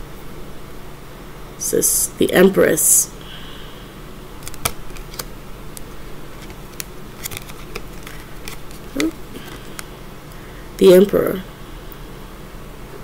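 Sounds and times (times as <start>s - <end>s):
cards clicking and tapping: 4.4s - 5.3s, 6.4s - 9.8s.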